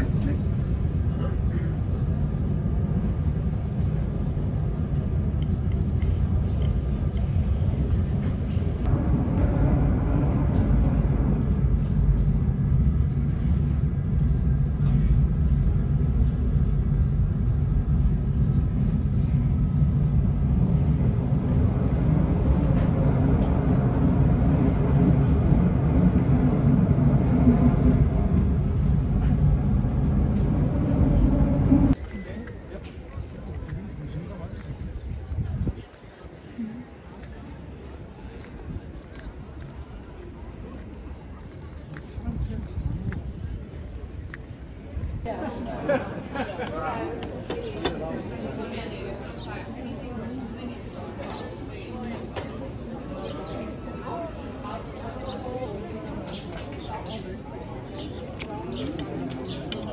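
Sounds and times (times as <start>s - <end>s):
train rumbling inside carriage: 0.0s - 32.1s.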